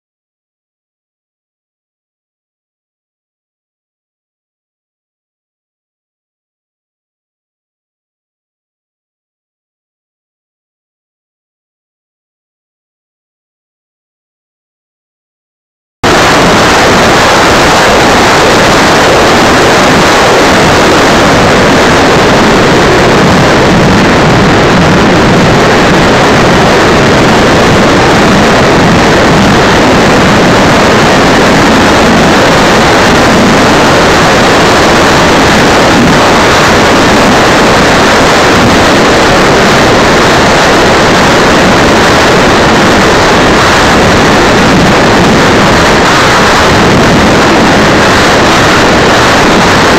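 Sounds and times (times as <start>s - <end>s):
electric ducted fans: 16.0s - 49.9s
rush of airflow: 16.0s - 49.9s.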